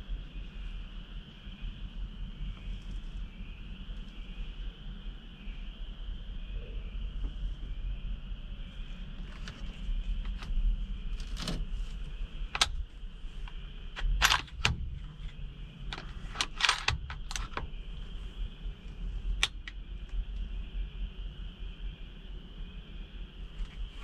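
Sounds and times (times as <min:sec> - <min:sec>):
night insect chorus: 0:00.0 - 0:24.0
sharp clicks and rattles: 0:09.2 - 0:10.6, 0:12.5 - 0:17.8, 0:19.4 - 0:20.4.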